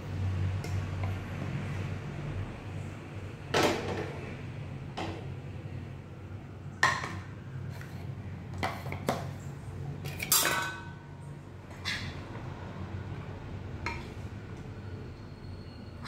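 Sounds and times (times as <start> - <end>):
metal kitchenware clinking: 10.0 - 11.0.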